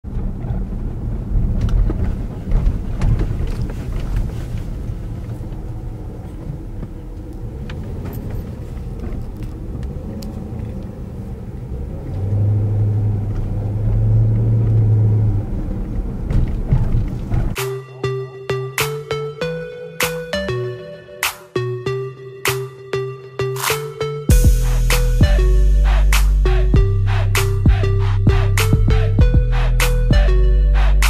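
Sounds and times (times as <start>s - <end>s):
car engine and road rumble: 0.0s - 17.6s, 21.8s - 31.0s
steady low drone: 24.3s - 31.0s.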